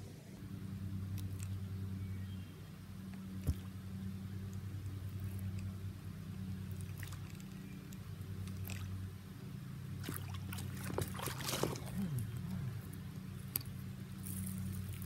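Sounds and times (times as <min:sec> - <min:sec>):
steady low hum: 0:00.0 - 0:15.0
water splashing: 0:06.7 - 0:07.6, 0:08.4 - 0:09.0, 0:10.0 - 0:12.9
fish striking water: 0:10.0 - 0:12.3.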